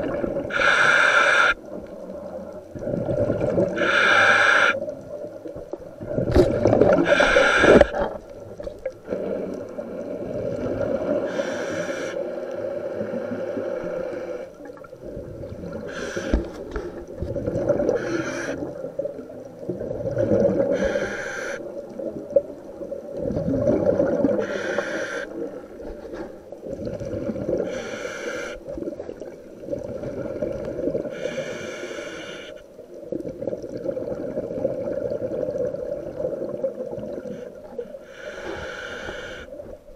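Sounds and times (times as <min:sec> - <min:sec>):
regulator breath hiss: 0:00.5 - 0:01.6, 0:03.8 - 0:04.8, 0:07.0 - 0:07.9, 0:11.3 - 0:12.2, 0:15.9 - 0:16.5, 0:18.0 - 0:18.6, 0:20.7 - 0:21.7, 0:24.4 - 0:25.4, 0:27.7 - 0:28.6, 0:31.1 - 0:32.6, 0:37.4 - 0:39.6
bubbling exhalations: 0:23.2 - 0:25.6.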